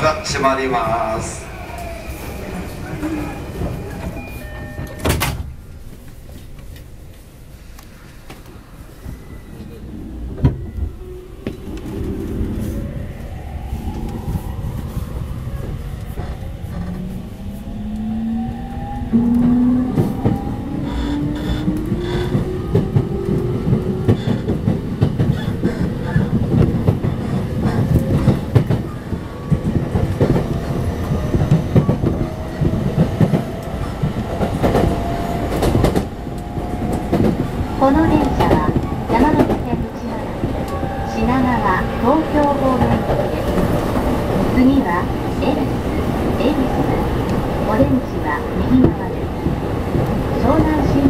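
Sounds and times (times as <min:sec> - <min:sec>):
train rumble: 0:00.0 - 0:51.0
train motor whine: 0:13.8 - 0:24.4.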